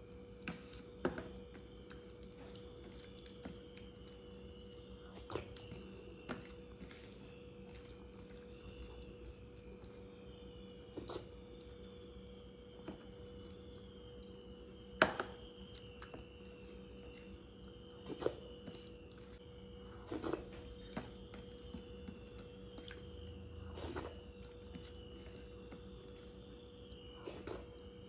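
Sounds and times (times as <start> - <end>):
faint steady hum: 0.0 - 28.0
hand squishing wet rice: 0.4 - 28.0.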